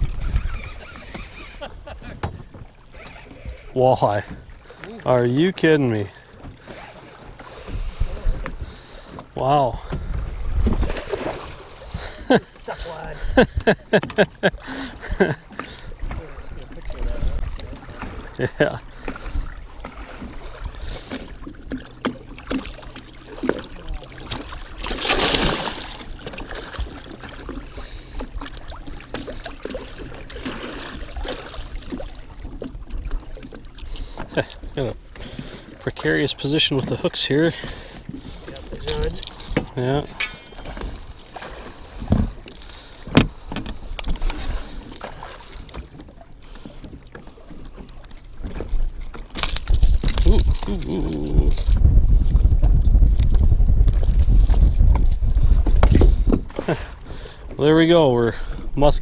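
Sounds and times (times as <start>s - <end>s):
water lapping against boat: 0.0s - 59.0s
loud splash: 24.3s - 26.1s.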